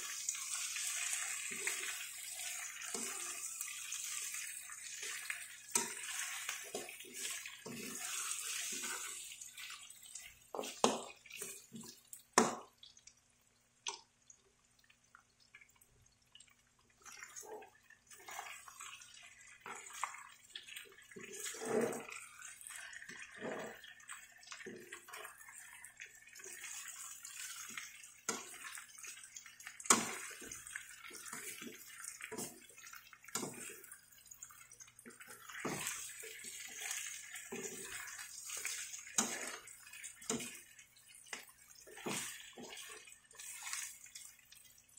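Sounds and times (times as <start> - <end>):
meat sizzling in a wok: 0.0 - 11.8, 24.2 - 33.9, 35.2 - 44.2
spatula scraping and knocking wok: 0.0 - 11.8, 29.8 - 33.9, 35.2 - 40.7, 41.3 - 44.0.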